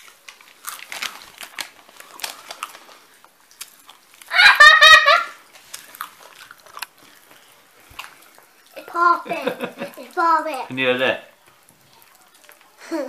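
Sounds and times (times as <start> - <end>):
popping candy crackles: 0.0 - 13.0
girl squealing: 4.3 - 5.4.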